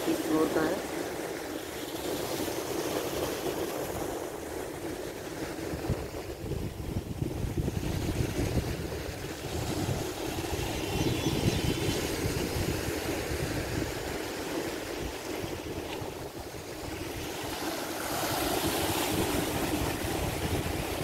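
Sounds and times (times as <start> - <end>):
wind buffeting microphone: 2.2 - 21.0
waves breaking against rocks: 12.0 - 21.0.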